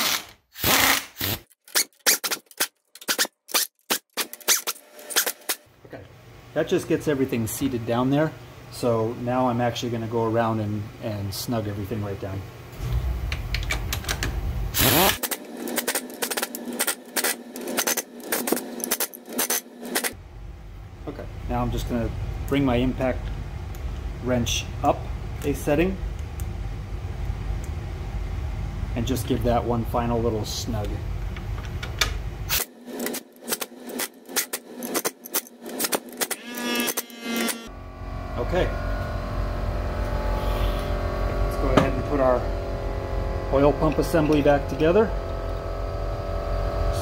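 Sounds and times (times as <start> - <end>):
impact driver whine: 0.0 - 2.4, 3.1 - 5.7, 14.7 - 20.2, 32.5 - 47.0
impact driver clicking and rattling: 31.6 - 37.6.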